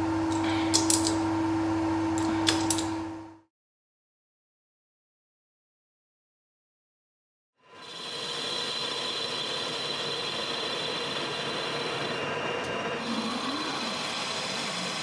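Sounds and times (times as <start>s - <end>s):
metal lathe cutting with high whine: 7.7s - 15.0s.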